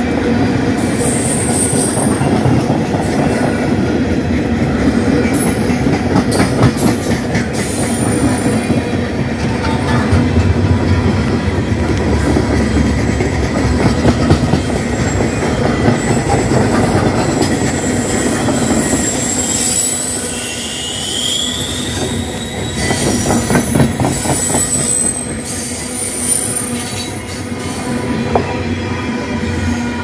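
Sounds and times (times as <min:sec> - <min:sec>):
train wheels rumbling and clattering: 0:00.0 - 0:30.0
high-pitched wheel squeal: 0:17.8 - 0:23.5, 0:24.2 - 0:27.2.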